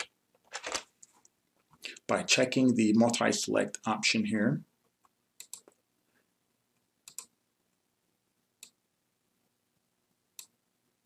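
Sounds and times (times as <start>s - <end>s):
computer mouse clicks: 5.0s - 5.8s, 7.0s - 7.3s, 10.4s - 10.6s.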